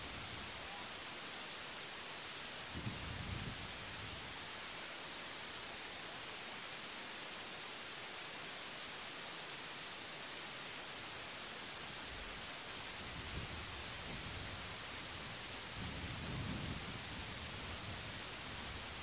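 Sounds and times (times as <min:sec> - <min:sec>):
steady hiss: 0:00.0 - 0:19.0.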